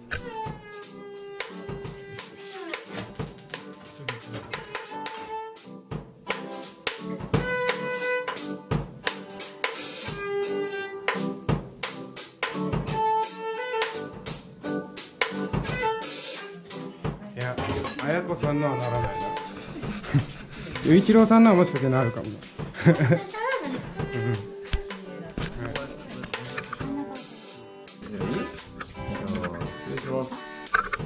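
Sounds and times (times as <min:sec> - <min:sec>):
drum kit beat: 0:00.0 - 0:16.5, 0:19.2 - 0:31.0
held melodic notes: 0:24.0 - 0:31.0.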